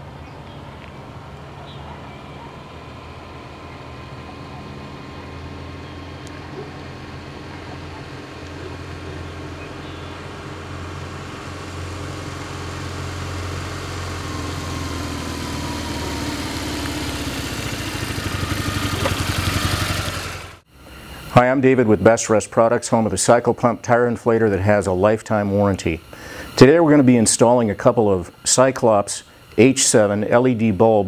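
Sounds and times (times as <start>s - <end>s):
motorcycle engine running: 0.0s - 20.7s.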